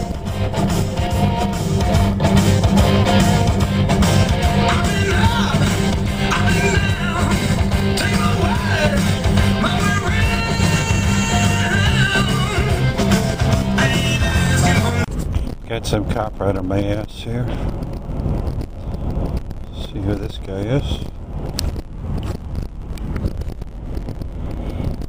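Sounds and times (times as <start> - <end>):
rock song on car radio: 0.0 - 15.4.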